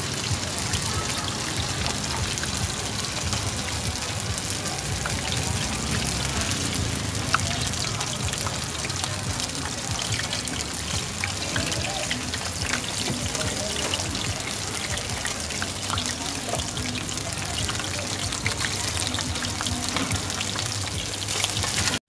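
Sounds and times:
hot oil sizzling and popping: 0.0 - 22.0.

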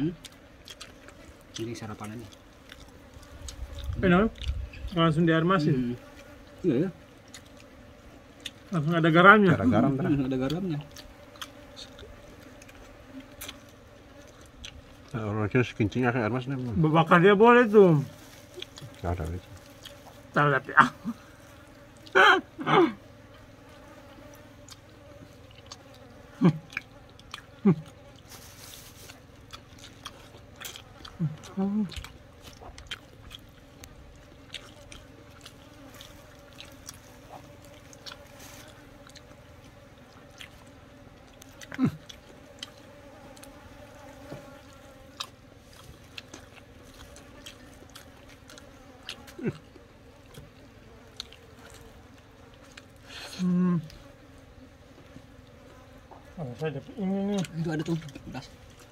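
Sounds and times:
fly buzzing: 0.0 - 58.9
soft clicks from eating: 41.2 - 43.6.

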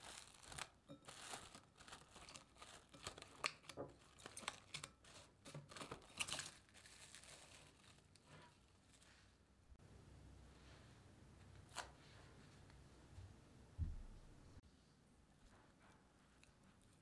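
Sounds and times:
plastic cling wrap crinkling: 0.0 - 9.3.

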